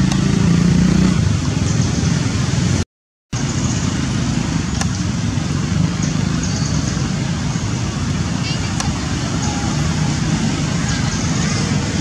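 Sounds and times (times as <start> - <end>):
loud low rushing noise: 3.4 - 12.0.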